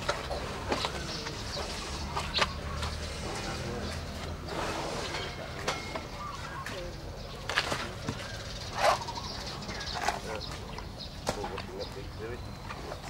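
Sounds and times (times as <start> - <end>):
elephants crunching corn: 9.8 - 13.0.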